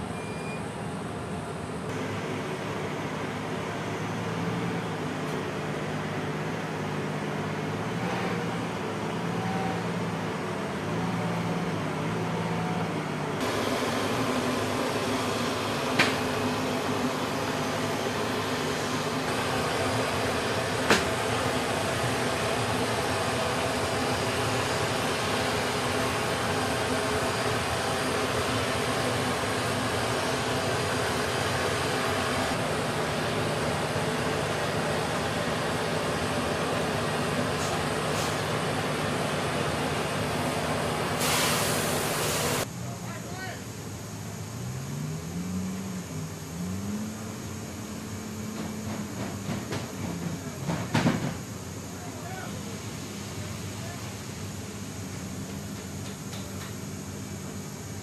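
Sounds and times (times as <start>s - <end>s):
cargo loader machinery noise: 0.0s - 43.0s, 43.7s - 58.0s.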